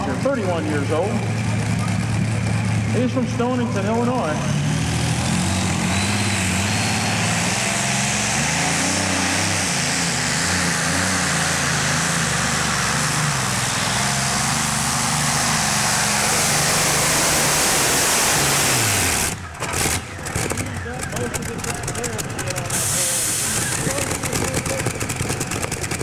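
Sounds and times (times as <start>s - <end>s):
tractor engine at full throttle: 0.0s - 26.0s
tyre and track noise: 18.7s - 26.0s.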